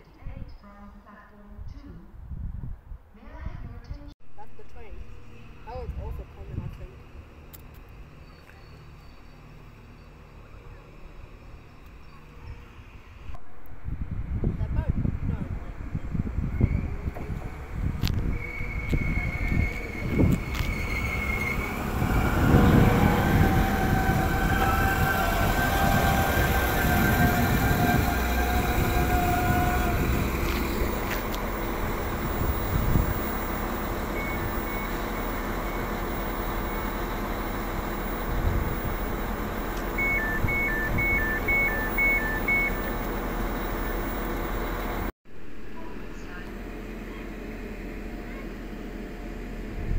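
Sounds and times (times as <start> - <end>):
train engine and wheels whining: 4.4 - 49.9
two-tone electronic beeping: 39.9 - 43.1.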